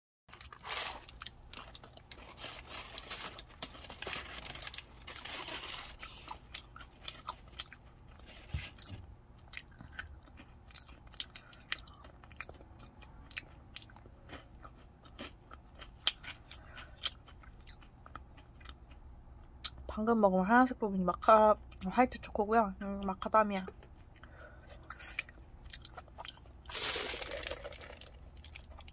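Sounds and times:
paper wrapper rustling: 0:00.3 - 0:06.3, 0:26.7 - 0:28.1
chewing cookie: 0:06.0 - 0:19.8.

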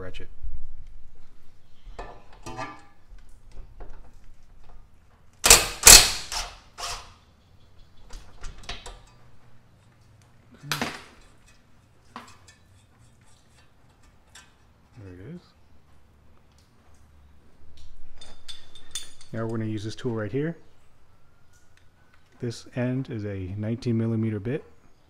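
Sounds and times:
metal tools clanking: 0:02.0 - 0:03.0, 0:11.1 - 0:15.1, 0:18.2 - 0:20.2.

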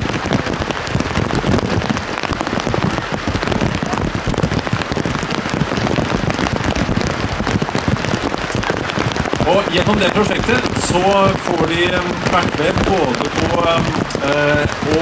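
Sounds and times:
heavy rain on plastic cover: 0:00.0 - 0:15.0.

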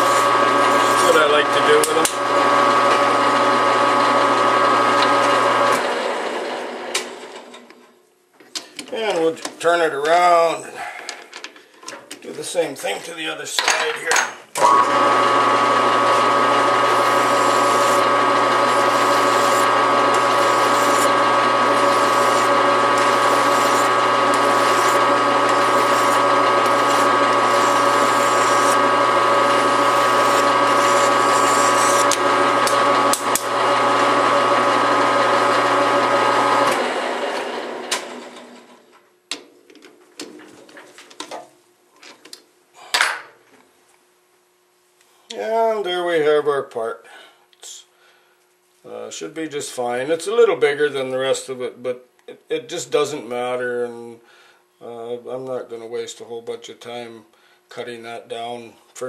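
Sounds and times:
file against spinning metal: 0:00.0 - 0:03.0, 0:15.8 - 0:33.0
metal lathe whining: 0:00.0 - 0:07.6, 0:14.6 - 0:38.4.

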